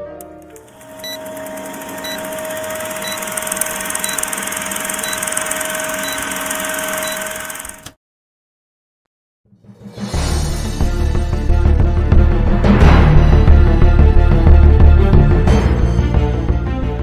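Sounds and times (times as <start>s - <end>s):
film projector rattling whir: 0.2s - 8.0s.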